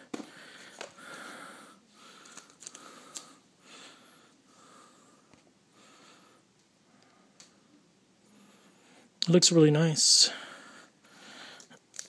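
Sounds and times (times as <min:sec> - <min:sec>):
faint plastic rustling: 0:02.0 - 0:03.4.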